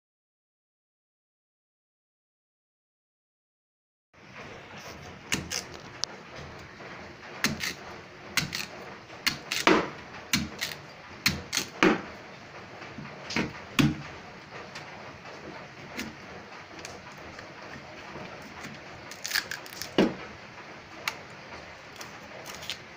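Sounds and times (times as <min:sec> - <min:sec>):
knife chopping on steel: 0:05.3 - 0:05.7, 0:07.4 - 0:12.2, 0:13.3 - 0:14.1.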